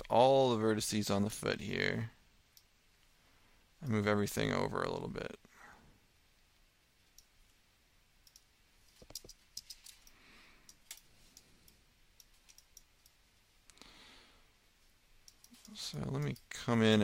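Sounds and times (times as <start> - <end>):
mouse and keyboard clicks: 8.2 - 13.2.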